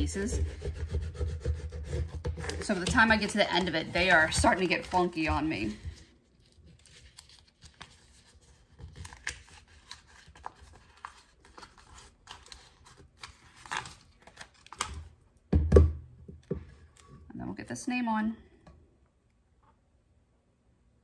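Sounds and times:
paper rustling: 2.4 - 14.8.

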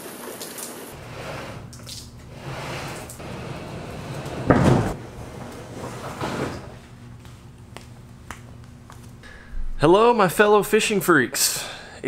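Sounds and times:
kayak thumping on wooden boards: 4.4 - 5.0.

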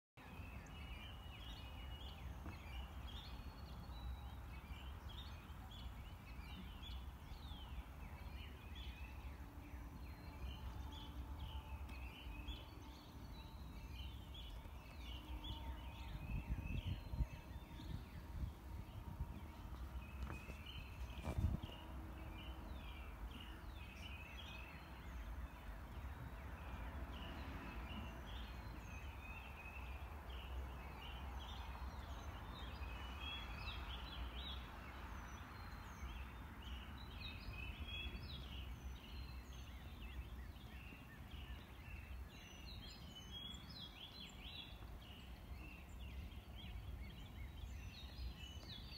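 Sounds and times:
songbirds chirping and whistling: 0.2 - 48.9.

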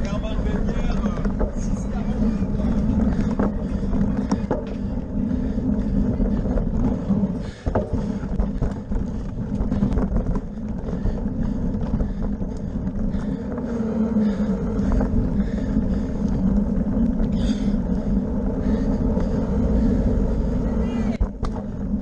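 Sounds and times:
bicycle tyres and frame rattling: 0.0 - 22.0
wind buffeting microphone: 0.0 - 22.0.

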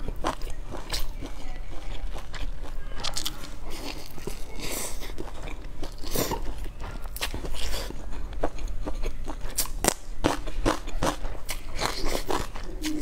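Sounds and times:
crunchy flatbread chewing: 0.0 - 13.0.

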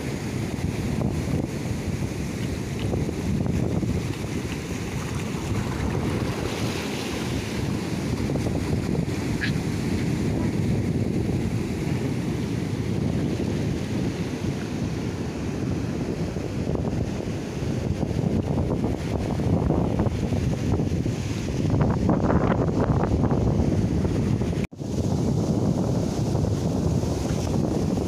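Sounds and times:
wind buffeting microphone: 0.0 - 28.0
surf breaking over rocks: 1.0 - 15.5.

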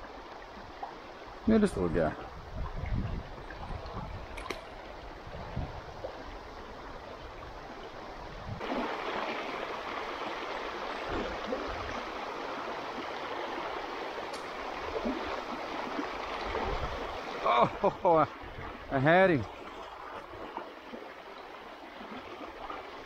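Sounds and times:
river rushing over rocks: 8.6 - 19.2.

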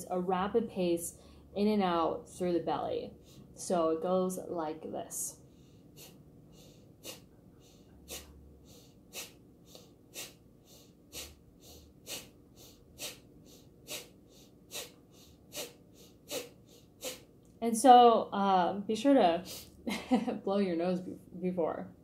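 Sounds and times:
sharp exhalations through nose: 5.6 - 17.3.

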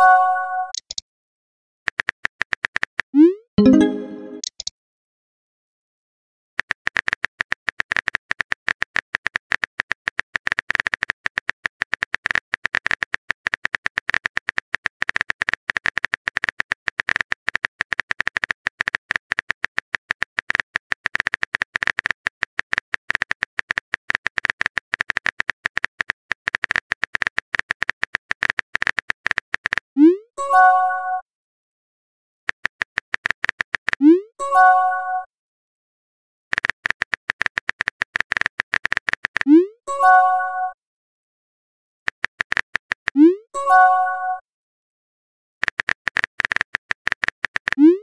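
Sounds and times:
simulated keyboard typing clicks: 0.0 - 1.0, 1.9 - 4.7, 6.6 - 30.2, 32.5 - 34.3, 36.5 - 40.2, 42.1 - 43.8, 45.6 - 48.0.

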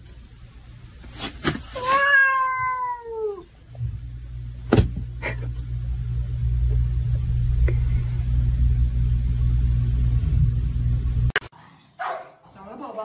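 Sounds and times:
cat meowing: 1.8 - 3.5
low rumble: 3.8 - 11.3.

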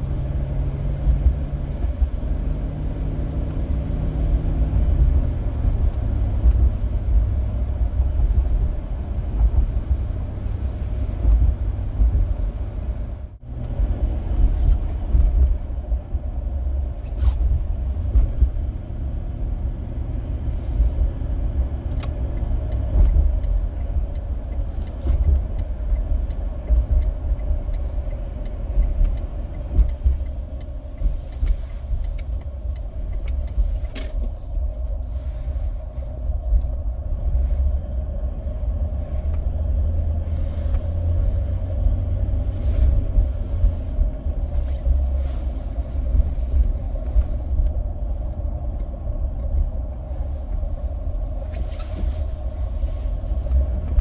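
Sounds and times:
car engine and road rumble: 0.0 - 54.0
light scattered ticks: 21.9 - 34.2.

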